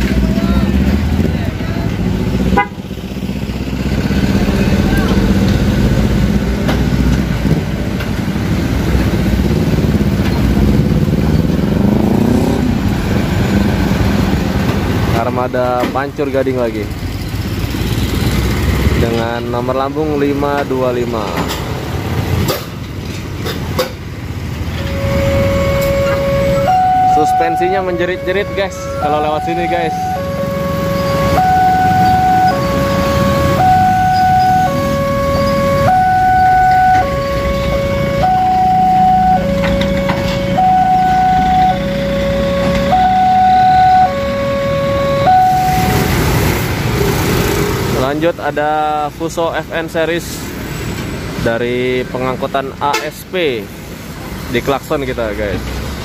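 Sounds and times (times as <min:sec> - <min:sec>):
diesel truck engines passing: 0:00.0 - 0:56.0
electronic two-tone alarm: 0:24.8 - 0:46.1.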